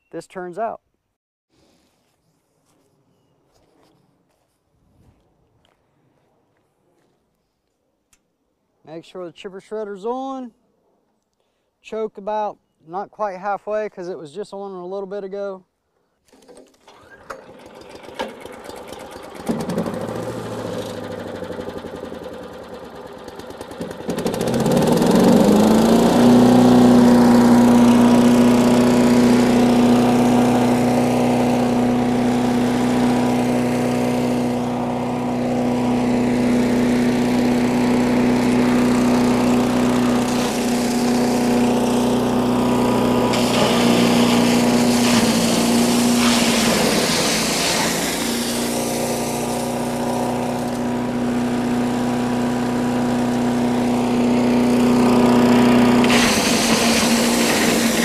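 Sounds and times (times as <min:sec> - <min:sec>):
small gas engine running: 0:16.4 - 0:58.0
wood shredding grinding: 0:22.8 - 0:58.0.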